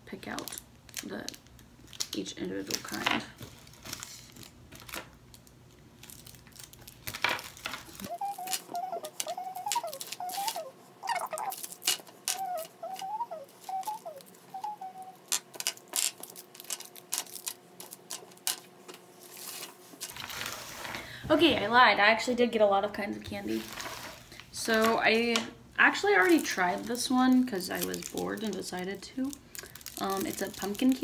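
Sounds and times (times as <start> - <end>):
plastic-wrapped candies crinkling: 0.1 - 20.8, 26.0 - 31.0
high wavering humming sound: 8.0 - 15.4.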